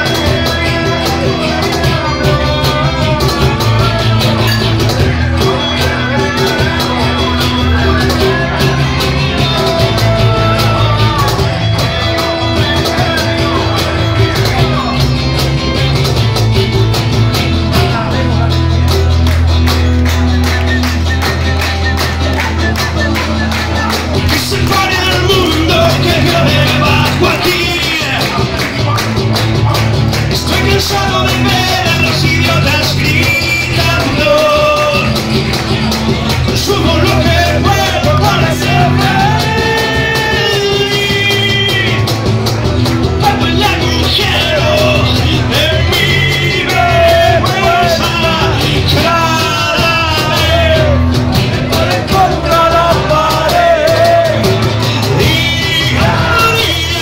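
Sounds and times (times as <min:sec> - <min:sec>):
acoustic guitar: 0:00.0 - 0:57.0
man singing: 0:00.0 - 0:57.0.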